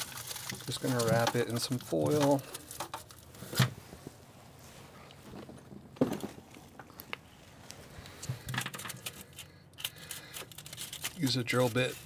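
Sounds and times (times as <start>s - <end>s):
aluminium foil crinkling: 0.0s - 3.6s, 8.0s - 12.0s.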